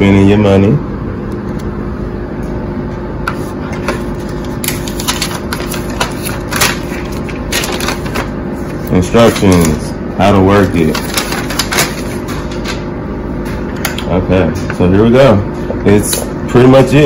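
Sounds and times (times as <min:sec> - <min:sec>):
steady background hum: 0:00.0 - 0:17.0
paper rustling and crinkling: 0:03.8 - 0:12.8.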